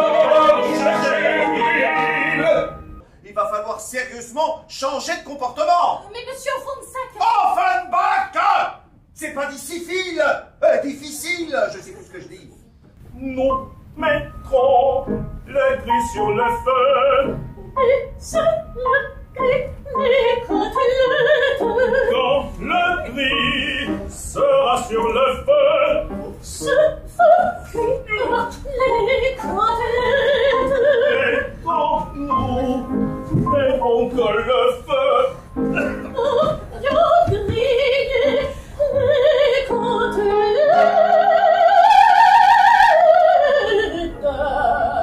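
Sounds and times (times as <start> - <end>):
piano accompaniment: 0.0 - 3.0, 13.4 - 41.7
operetta singing trio: 0.0 - 3.1, 13.1 - 45.0.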